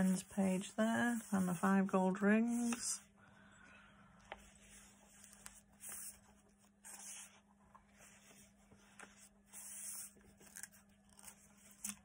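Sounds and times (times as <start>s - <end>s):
paper pages rustling: 2.4s - 2.9s, 4.3s - 12.0s.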